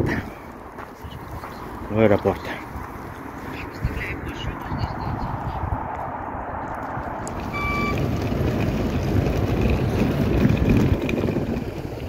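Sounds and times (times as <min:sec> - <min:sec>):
motor vehicle running: 0:00.0 - 0:12.0
short electronic beep: 0:07.4 - 0:08.0.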